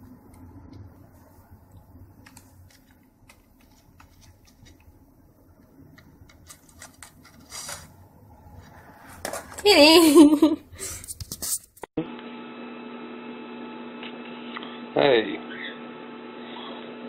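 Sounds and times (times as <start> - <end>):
steady low hum: 0.0 - 11.2.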